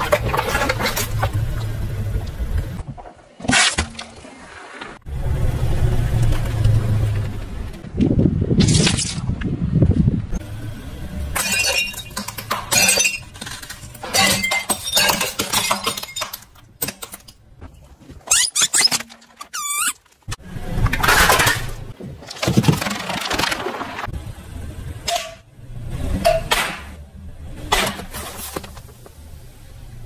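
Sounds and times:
ceramic and plastic crunching: 11.4s - 24.1s
short squeak: 18.3s - 20.0s.

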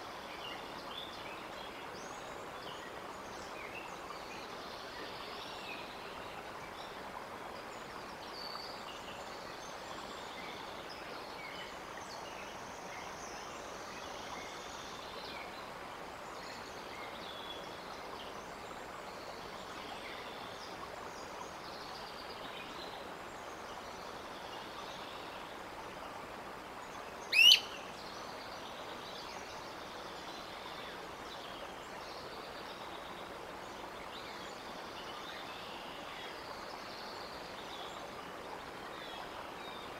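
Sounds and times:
outdoor background noise: 0.0s - 39.9s
faint bird chirps: 27.2s - 27.9s
loud rising bird call: 27.3s - 27.7s.

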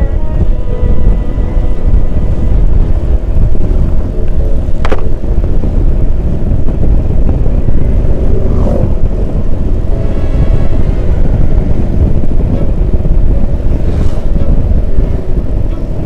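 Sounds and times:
wind rushing over microphone: 0.0s - 16.0s.

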